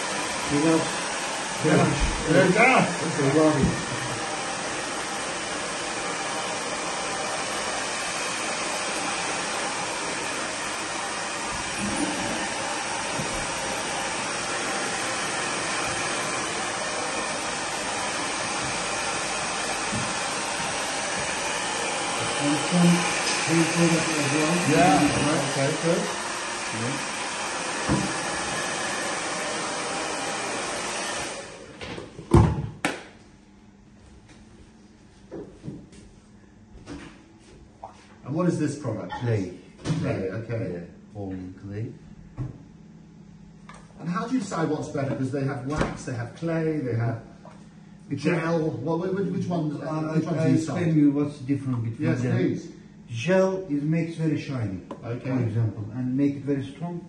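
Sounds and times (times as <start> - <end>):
hair dryer blowing: 0.0 - 31.8, 48.2 - 51.2.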